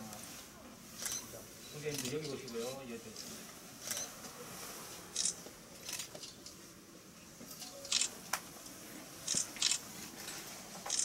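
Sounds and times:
camera shutter clicks: 5.2 - 6.1, 7.9 - 8.1, 9.3 - 9.8.

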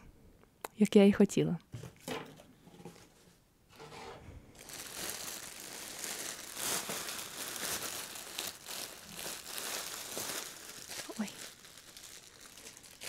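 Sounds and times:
plastic bag crinkling: 4.5 - 13.0.

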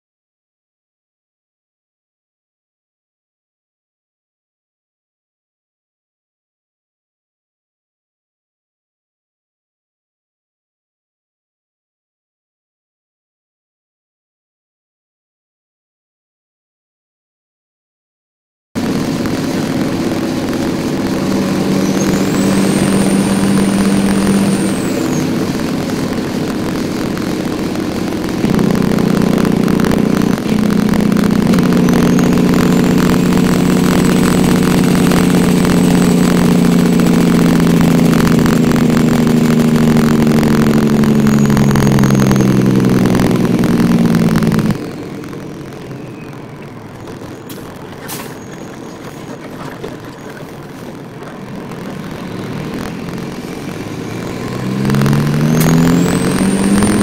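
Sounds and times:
truck diesel engine from cab: 18.8 - 57.0.

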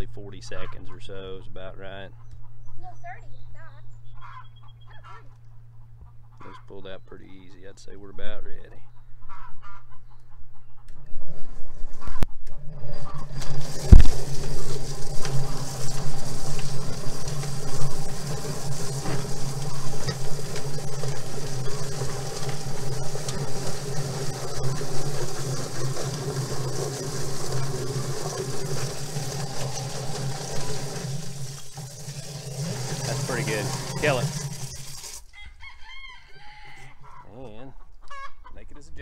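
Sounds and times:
electric motor humming: 12.6 - 35.3
hose spraying water: 13.0 - 35.3.

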